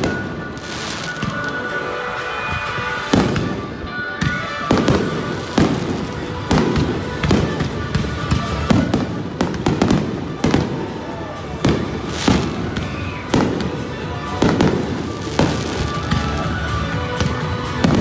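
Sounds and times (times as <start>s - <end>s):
music: 0.0s - 18.0s.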